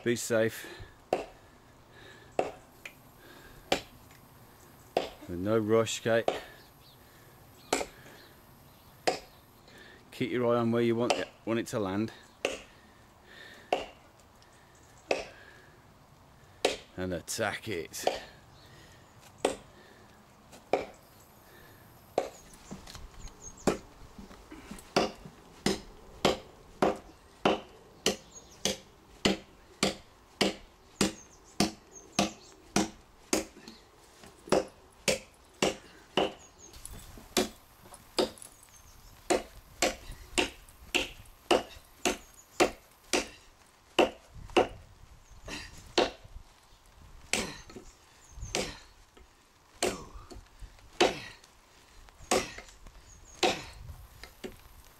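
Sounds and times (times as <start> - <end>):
tomahawk chopping into a log: 16.6 - 16.9, 25.0 - 33.6, 34.5 - 36.4, 37.4 - 37.6, 39.3 - 43.4, 44.0 - 44.8, 46.0 - 46.2, 49.8 - 50.4, 51.0 - 51.2, 52.3 - 52.6.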